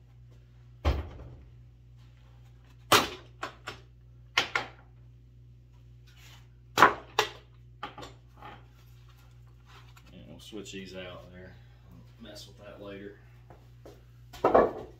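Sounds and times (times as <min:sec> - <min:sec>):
wooden boards knocking: 0:14.4 - 0:14.9.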